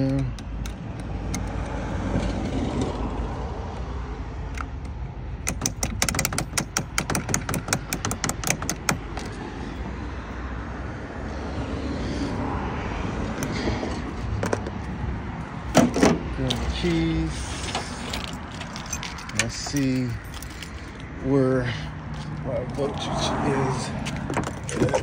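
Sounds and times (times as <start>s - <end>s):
ratchet wrench clicking: 0.0s - 1.9s, 4.5s - 9.3s.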